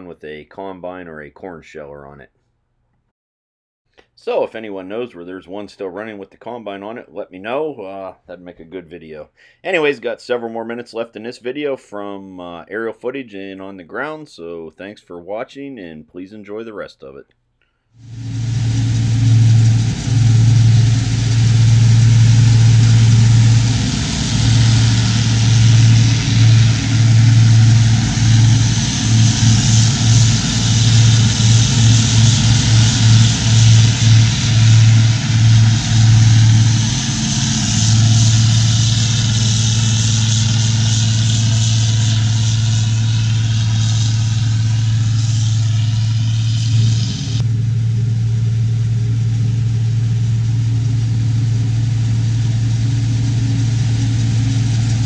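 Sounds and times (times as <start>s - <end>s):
rushing hiss: 18.0s - 47.4s
forage harvester engine hum: 18.0s - 55.0s.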